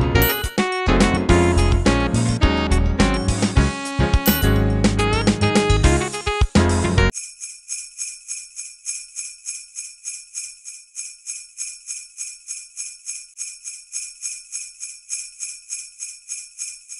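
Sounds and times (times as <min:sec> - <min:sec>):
sleigh bells shaken: 0:00.2 - 0:00.8, 0:04.3 - 0:04.7, 0:07.1 - 0:16.9.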